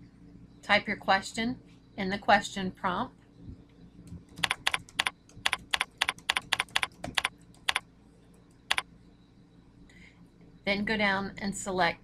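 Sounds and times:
keyboard key clicks: 4.1s - 7.8s.

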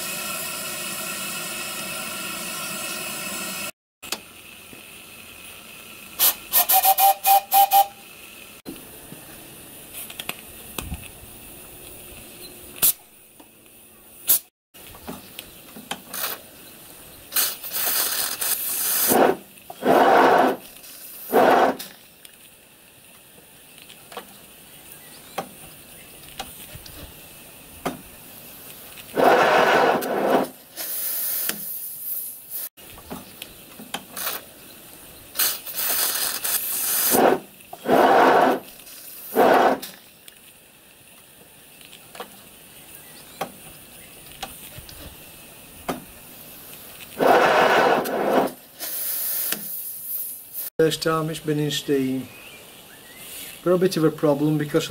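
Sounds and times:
steam locomotive hissing bursts: 0.0s - 3.7s, 4.4s - 8.6s, 17.2s - 22.1s, 24.5s - 32.7s, 35.2s - 40.1s, 44.5s - 52.3s, 53.1s - 54.4s.

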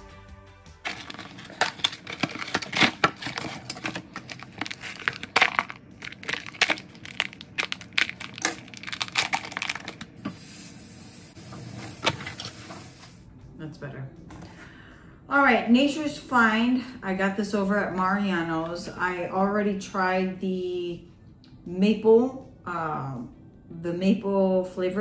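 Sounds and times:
packaging crinkling: 0.8s - 10.3s
steady hiss: 10.2s - 13.3s.

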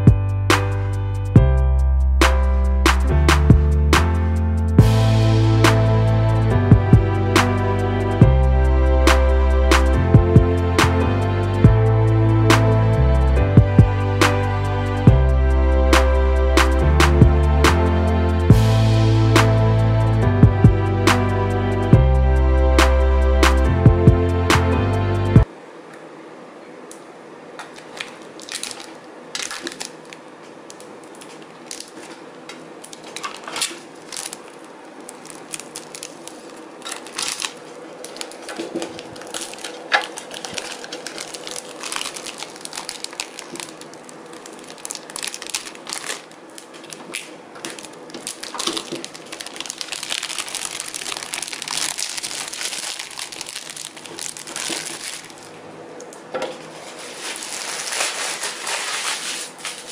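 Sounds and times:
plastic film crinkling: 27.6s - 55.6s, 56.6s - 59.9s.

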